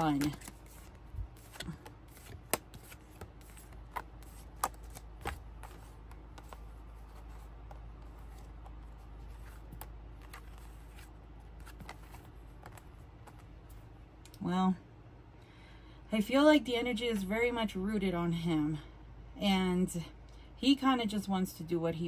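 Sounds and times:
cards tapping and sliding: 0.0 - 13.5.

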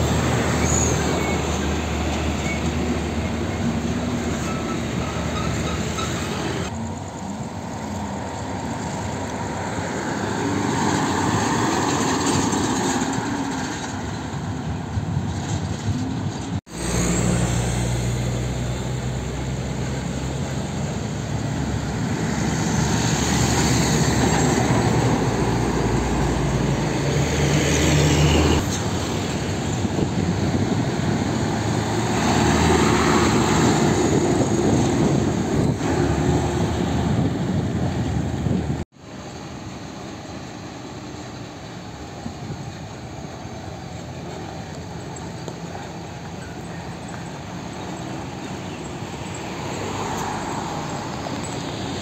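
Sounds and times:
diesel trucks passing: 0.0 - 52.0
steady traffic rumble: 0.0 - 52.0.

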